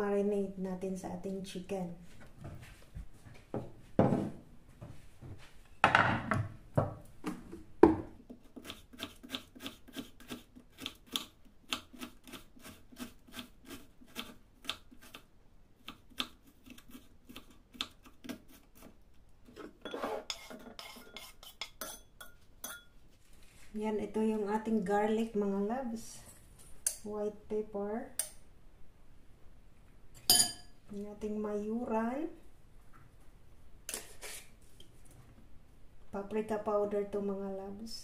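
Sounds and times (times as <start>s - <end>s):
kitchenware knocking on counter: 4.0s - 4.4s, 5.8s - 7.0s
scraping food into glass bowl: 19.5s - 22.9s.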